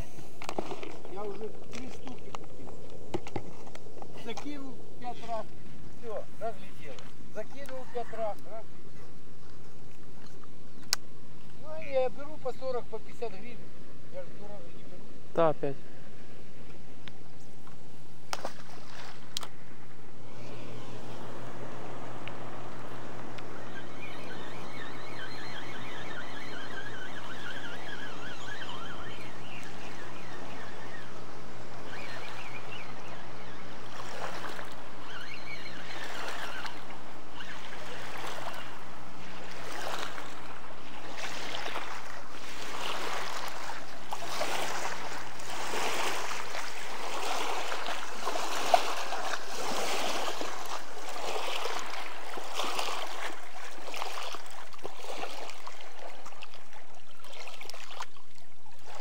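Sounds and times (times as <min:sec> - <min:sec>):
steady low hum: 0:00.0 - 0:57.3
river water rushing: 0:18.7 - 0:59.0.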